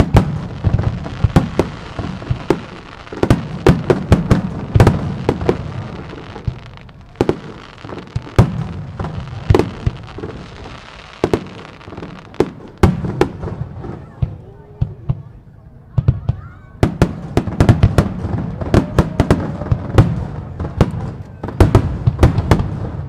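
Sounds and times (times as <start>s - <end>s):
firework bangs: 0.0s - 23.0s.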